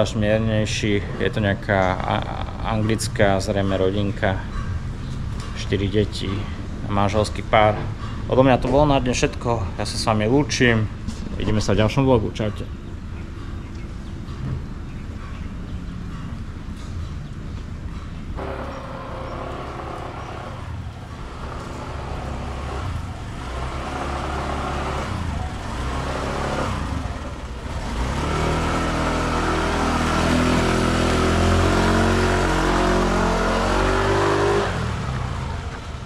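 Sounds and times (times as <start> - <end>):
engine running and revving: 18.4 - 36.0.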